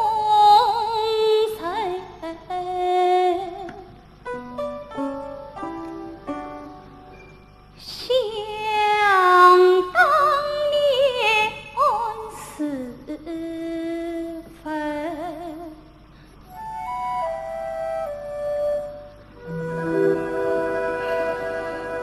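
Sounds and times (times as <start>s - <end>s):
woman singing with vibrato: 7.8s - 15.8s.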